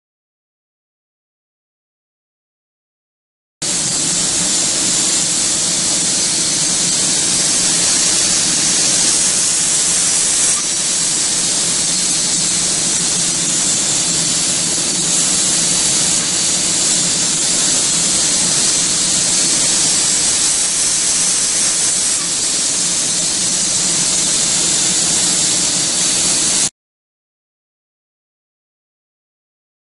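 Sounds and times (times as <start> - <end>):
spray gun hissing: 3.6 - 26.7.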